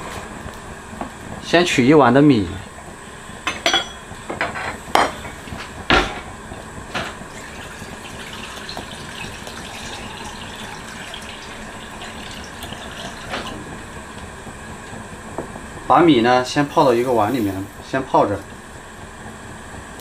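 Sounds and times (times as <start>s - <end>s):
tap water running into bowl: 7.0s - 14.3s.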